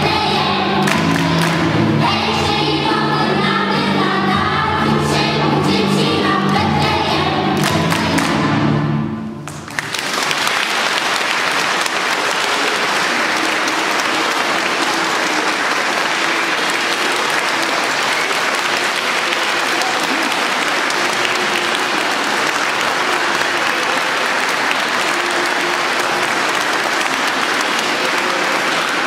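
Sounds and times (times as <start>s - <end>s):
choir holding a chord: 0.0s - 9.4s, 12.3s - 29.0s
audience applause: 9.4s - 29.0s.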